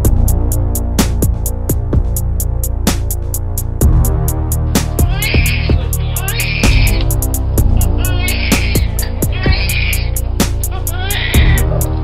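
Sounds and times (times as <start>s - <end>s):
beat with deep bass: 0.0s - 12.0s
newborn baby crying: 4.8s - 11.7s.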